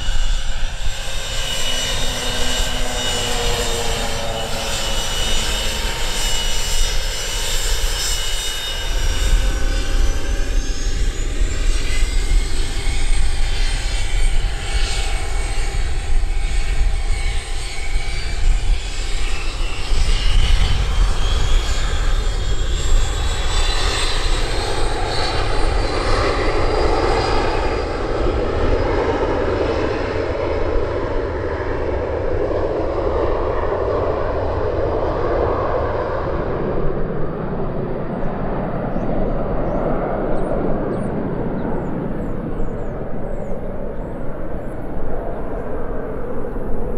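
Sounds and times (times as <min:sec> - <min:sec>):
jet rush: 0:00.0 - 0:14.6
jet engines rumbling: 0:00.0 - 0:46.9
rising jet engine whine: 0:00.0 - 0:46.9.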